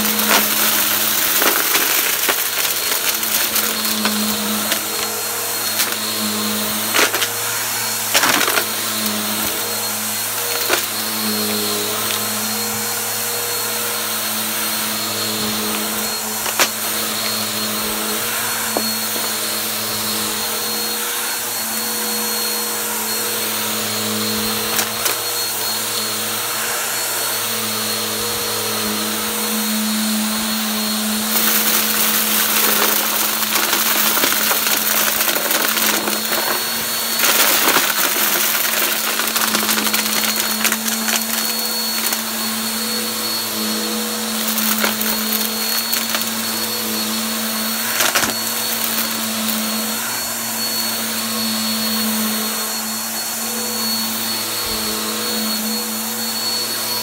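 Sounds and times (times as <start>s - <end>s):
debris rattling in canister: 0.0s - 12.5s, 15.5s - 17.8s, 24.7s - 25.3s, 31.2s - 42.8s, 44.2s - 49.7s
vacuum cleaner running: 0.0s - 57.0s.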